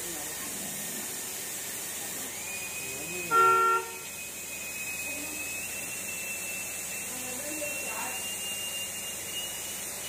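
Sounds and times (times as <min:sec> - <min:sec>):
high-pitched whine: 0:02.4 - 0:10.0
car horn beep: 0:03.3 - 0:04.1.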